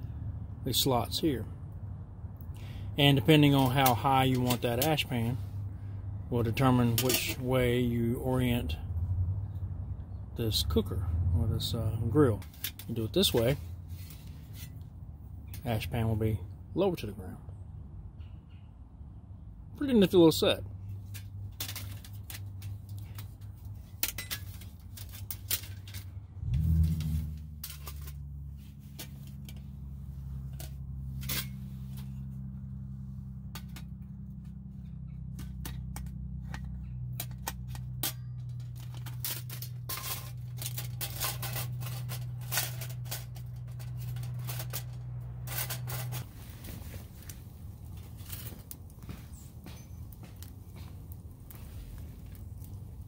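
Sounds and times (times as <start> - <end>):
metal stove panels clinking: 6.9 - 7.4, 35.2 - 46.3.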